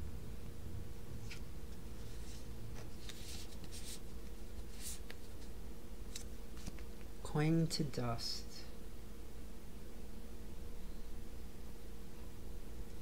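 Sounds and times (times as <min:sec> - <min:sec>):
faint steady hum: 0:00.0 - 0:13.0
card rustling against plastic: 0:02.0 - 0:06.9.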